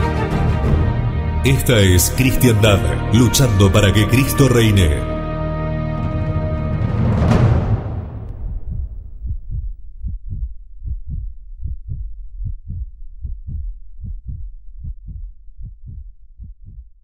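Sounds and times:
radio jingle chord: 0:01.4 - 0:05.2
low paired thumps: 0:05.8 - 0:17.0.

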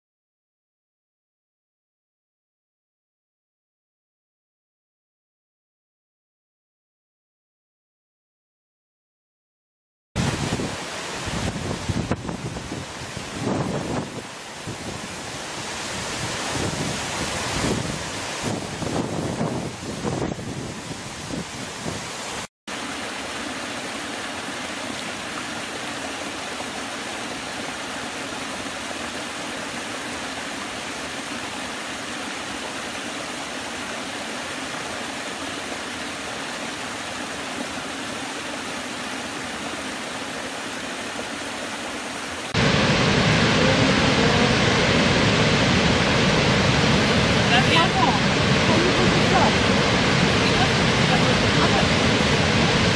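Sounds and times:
wind on the microphone: 0:10.2 - 0:22.5
large waterfall rushing: 0:10.2 - 0:52.9
stream splashing over rocks: 0:10.2 - 0:52.9.

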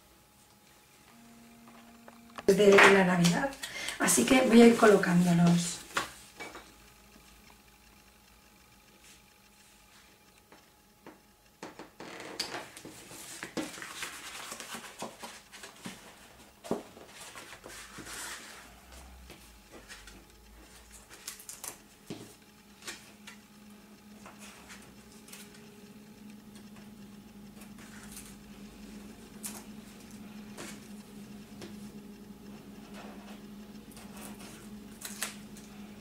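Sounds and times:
faint low hum: 0:00.0 - 0:13.3
paper rustling and crinkling: 0:12.8 - 0:18.6.

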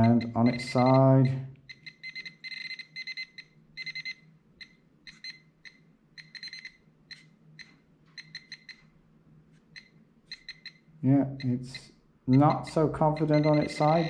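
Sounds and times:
metal detector high-pitched beeps: 0:00.0 - 0:08.9, 0:09.8 - 0:14.0.

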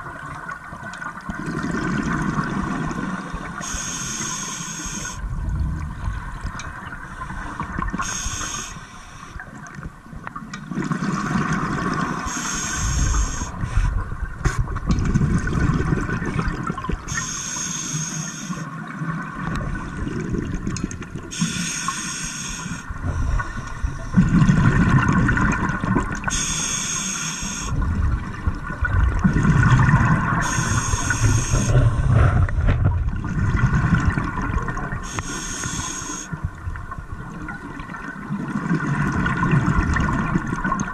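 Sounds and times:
exhaled air bubbling: 0:00.0 - 0:17.4, 0:18.6 - 0:40.9
regulator inhalation hiss: 0:03.6 - 0:05.2, 0:07.1 - 0:09.4, 0:12.3 - 0:13.9, 0:17.1 - 0:18.7, 0:21.3 - 0:24.0, 0:26.3 - 0:27.8, 0:30.4 - 0:31.8, 0:35.0 - 0:36.4.

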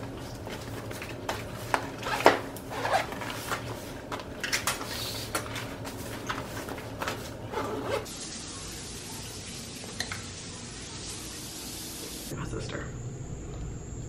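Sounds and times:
clothes rustling: 0:00.0 - 0:08.1
steady low hum: 0:12.3 - 0:14.0.

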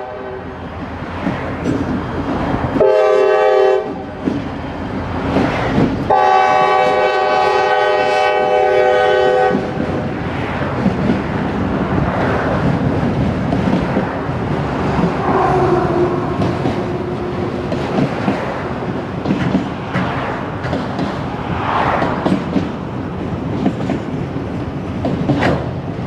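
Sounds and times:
train cars rumbling and clattering: 0:00.0 - 0:26.0
locomotive air horn chord: 0:02.8 - 0:04.1, 0:06.1 - 0:09.8.

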